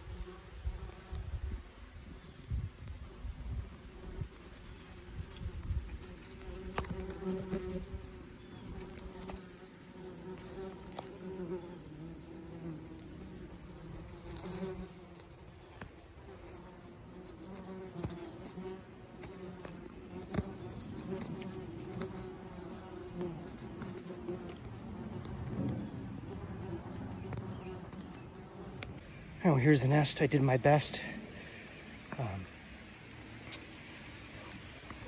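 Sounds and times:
wasps buzzing: 5.0 - 29.1.

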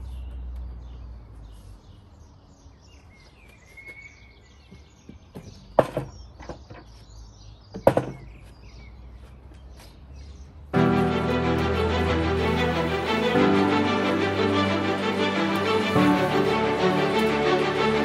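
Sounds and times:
birds chirping faintly: 0.0 - 10.8.

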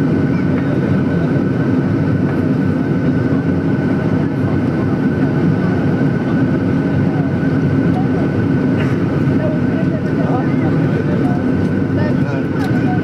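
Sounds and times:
aircraft cabin drone: 0.0 - 13.0.

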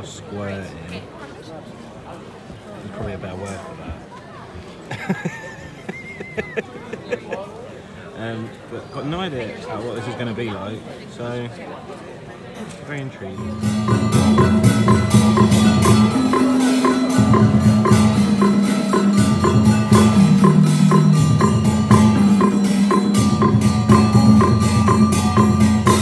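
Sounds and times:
held low instrumental tones: 13.4 - 26.0
wood block beat: 13.4 - 26.0.

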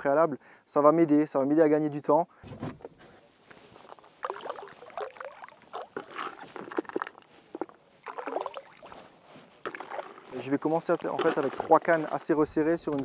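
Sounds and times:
bait splashing onto water: 3.8 - 9.0, 9.6 - 11.8.

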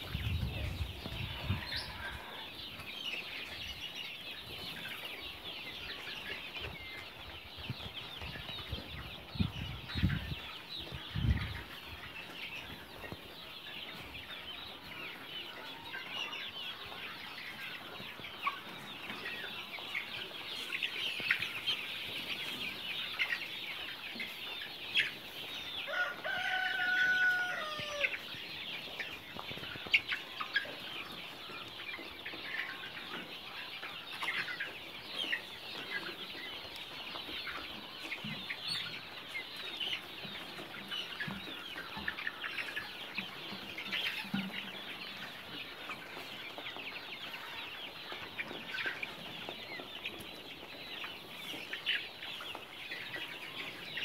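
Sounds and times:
chicks cheeping and clucking: 0.0 - 54.0
long held chicken call: 25.9 - 28.1.

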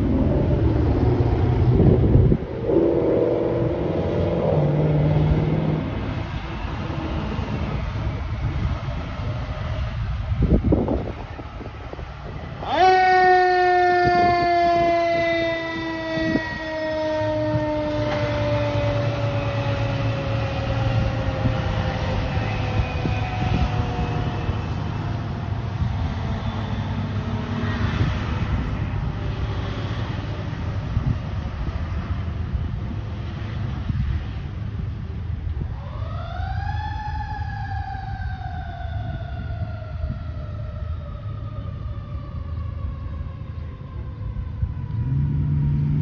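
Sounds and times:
fire truck siren: 0.0 - 34.4, 35.1 - 46.0
truck engine rumbling: 0.0 - 36.7.

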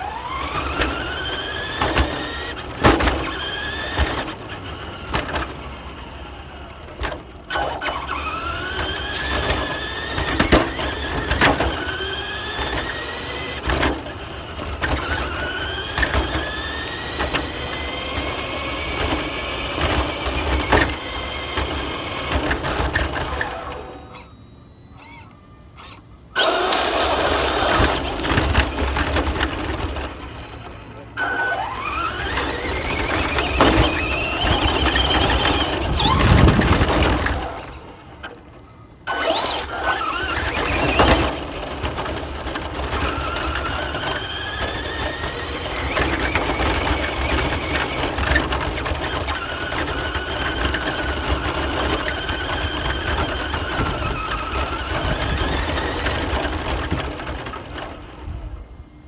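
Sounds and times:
radio-controlled car motor whining: 0.0 - 59.0.

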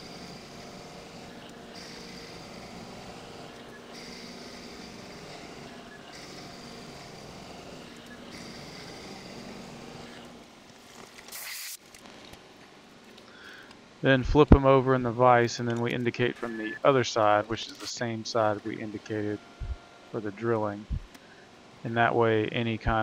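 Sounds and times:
milling machine running: 0.0 - 11.5
short hiss: 11.3 - 11.8.

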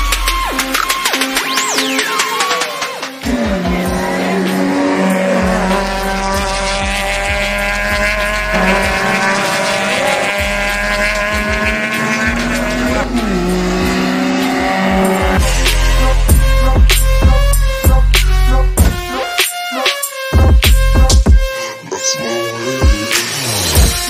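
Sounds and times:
racing car engine at high revs: 2.9 - 17.5.

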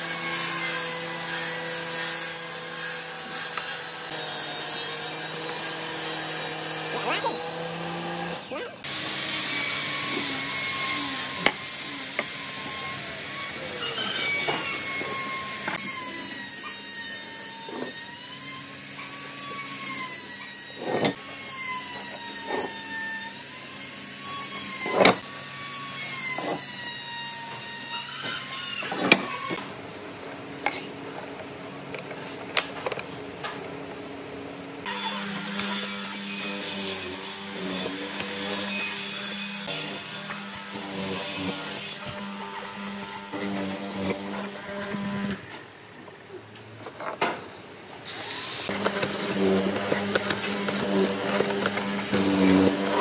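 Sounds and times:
faint wavering high tone: 13.7 - 14.9.

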